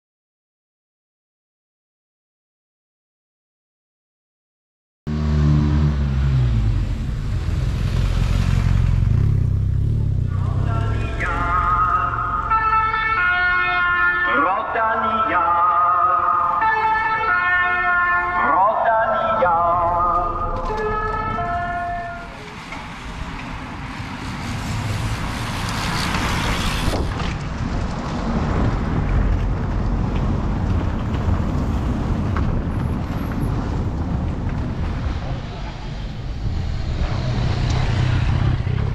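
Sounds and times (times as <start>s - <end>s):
rushing noise: 5.1s - 12.8s, 18.5s - 38.9s
motorcycle engine passing: 5.1s - 12.9s, 36.6s - 38.9s
multi-tone car horn: 20.3s - 22.4s.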